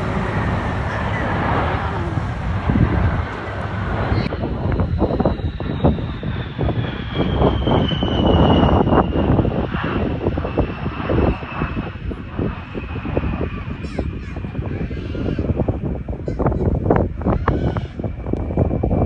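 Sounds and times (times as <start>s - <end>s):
high whine falling in pitch: 0.0s - 14.4s
jet flying past: 0.0s - 19.0s.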